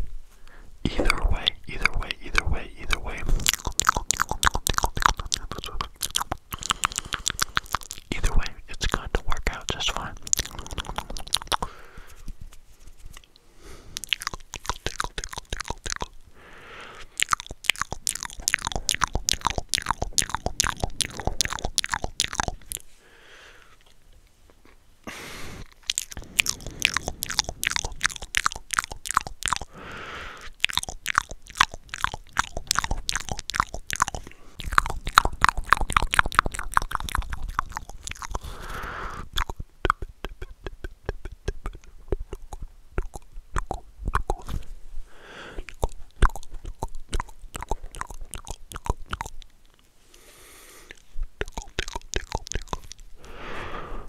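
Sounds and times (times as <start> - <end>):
soft breaths: 0.3 - 3.5, 6.5 - 14.2, 16.3 - 17.2, 22.5 - 24.0, 25.0 - 28.2, 29.6 - 30.6, 34.1 - 34.7, 38.3 - 39.3, 44.4 - 46.1, 49.9 - 51.3, 53.1 - 54.0
wet mouth clicks and smacks: 0.9 - 16.3, 16.9 - 23.0, 24.6 - 29.8, 30.4 - 44.7, 45.6 - 49.9, 50.9 - 53.4.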